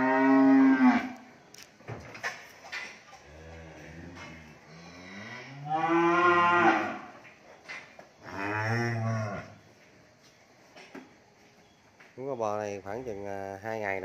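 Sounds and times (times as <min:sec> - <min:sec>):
cattle mooing: 0:00.0 - 0:01.2, 0:03.3 - 0:07.1.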